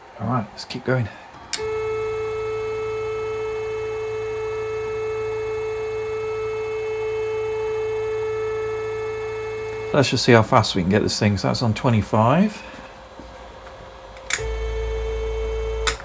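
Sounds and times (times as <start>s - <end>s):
stepper motor high whine: 1.4s - 10.1s
stepper motor click: 14.2s - 14.6s, 15.8s - 16.0s.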